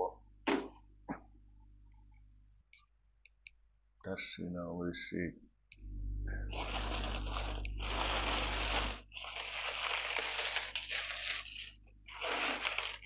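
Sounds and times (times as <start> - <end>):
plastic packaging crinkling: 6.5 - 13.0.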